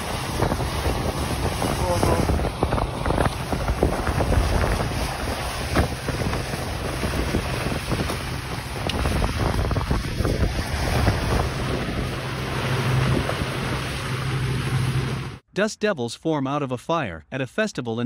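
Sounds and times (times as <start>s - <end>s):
wind buffeting microphone: 0.0s - 15.4s.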